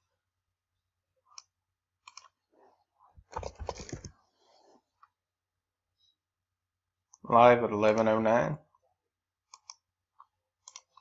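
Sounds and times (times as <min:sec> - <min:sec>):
computer mouse clicks: 0:01.3 - 0:02.4, 0:09.5 - 0:11.0.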